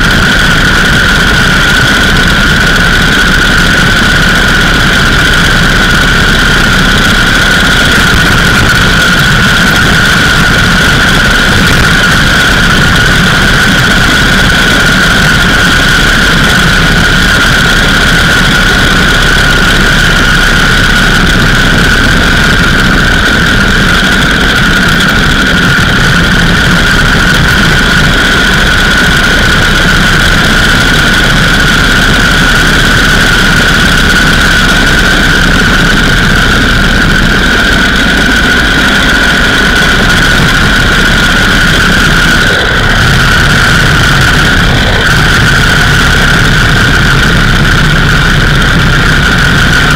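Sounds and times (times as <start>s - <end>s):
high whine: 0.0s - 49.9s
motorcycle engine running: 0.0s - 49.9s.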